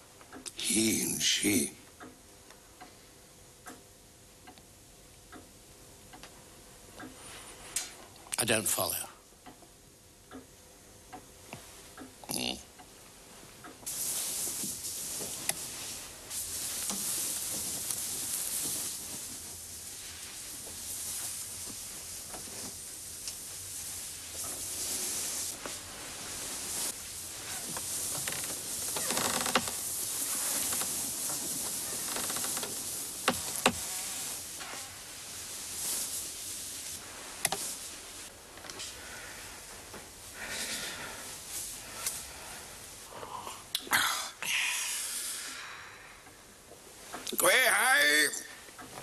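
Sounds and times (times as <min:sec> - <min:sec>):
steady hiss: 0:00.0 - 0:03.8, 0:04.5 - 0:09.3, 0:10.3 - 0:49.0
bedclothes rustling: 0:13.0 - 0:43.0.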